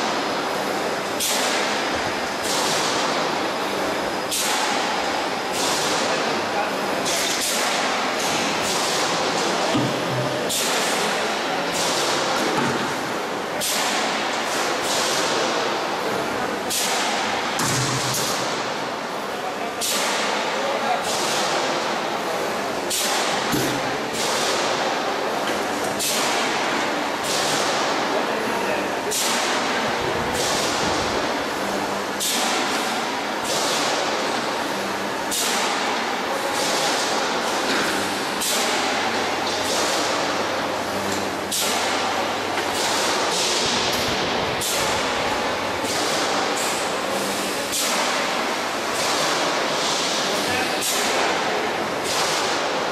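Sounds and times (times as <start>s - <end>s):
loud machinery noise: 0.0s - 52.9s.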